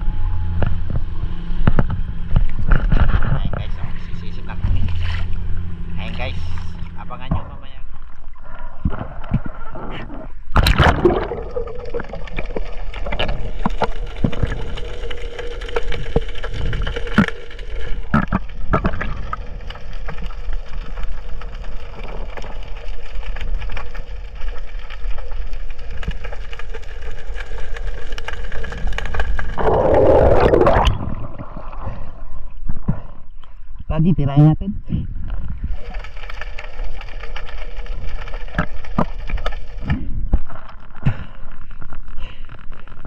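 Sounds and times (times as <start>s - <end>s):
muffled underwater hum: 0.0s - 43.0s
underwater clicks and knocks: 0.6s - 3.7s, 15.6s - 20.3s
camera splashing into water: 10.5s - 12.5s
rush of noise: 29.6s - 31.4s.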